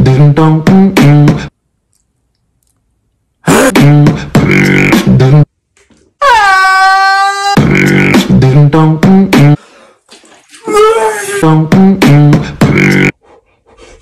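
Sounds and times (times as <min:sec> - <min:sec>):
beatbox vocal loop: 0:00.0 - 0:01.5, 0:03.5 - 0:05.5, 0:07.6 - 0:09.6, 0:11.4 - 0:13.2.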